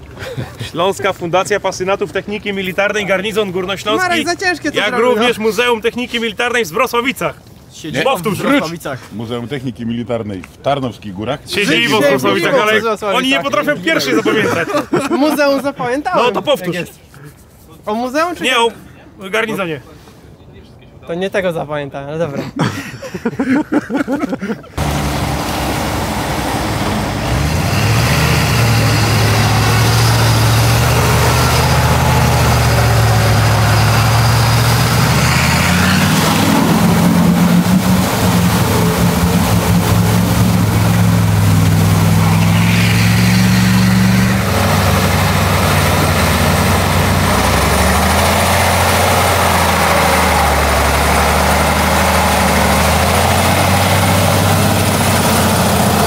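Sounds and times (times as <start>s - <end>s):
heavy truck engine under load: 24.8s - 56.0s.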